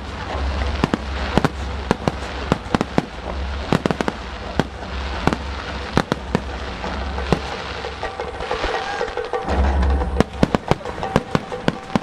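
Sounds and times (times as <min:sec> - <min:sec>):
low rumble: 0:00.0 - 0:08.6
fireworks shells bursting: 0:00.0 - 0:12.0.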